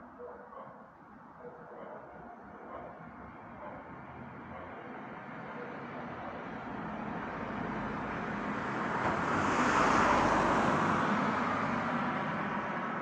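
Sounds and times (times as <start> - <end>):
car driving past: 7.2 - 12.6.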